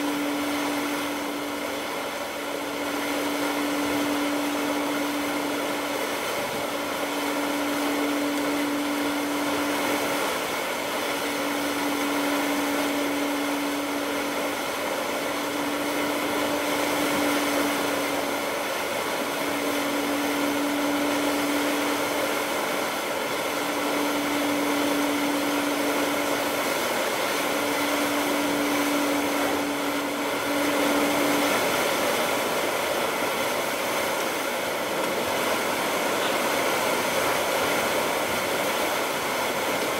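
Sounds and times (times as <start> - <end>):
low steady hum: 0.0 - 39.9.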